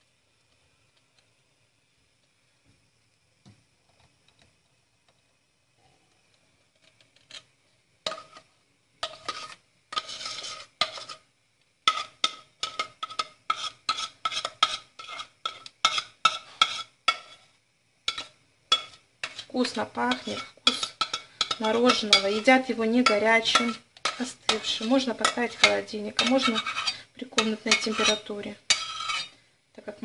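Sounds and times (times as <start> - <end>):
metal spoon scraping saucepan: 7.2 - 8.4, 9.0 - 17.5, 18.1 - 29.4.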